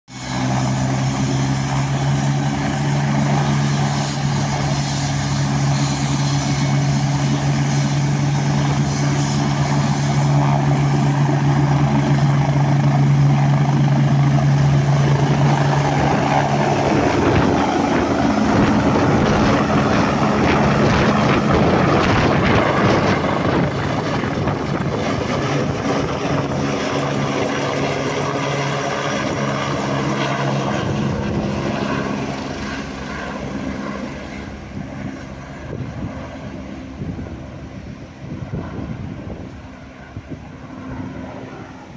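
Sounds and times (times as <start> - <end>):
helicopter turbines and rotor: 0.1 - 41.9.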